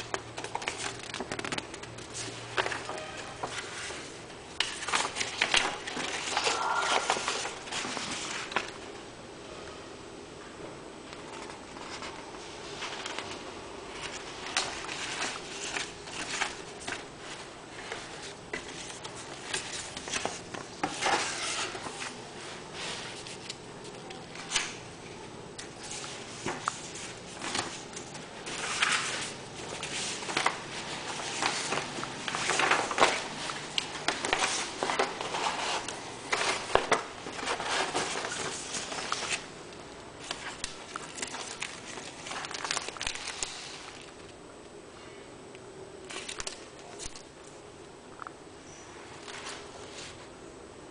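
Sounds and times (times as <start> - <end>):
pages being turned: 0.0 - 8.8, 11.2 - 24.8, 25.6 - 39.5, 40.2 - 44.3, 46.1 - 47.3, 49.2 - 50.3
plastic bag crinkling: 40.2 - 44.3.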